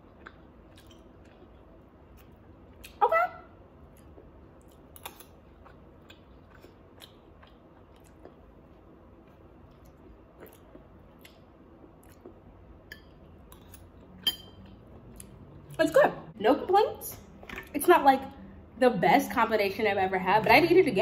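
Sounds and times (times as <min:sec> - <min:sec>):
faint chewing: 0:00.0 - 0:03.0, 0:03.9 - 0:12.4.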